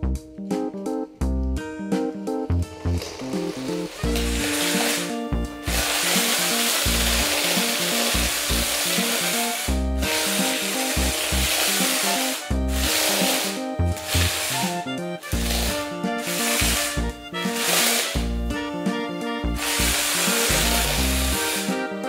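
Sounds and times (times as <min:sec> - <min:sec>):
background music with bass line: 0:00.0 - 0:22.0
loud steady hiss: 0:19.6 - 0:21.8.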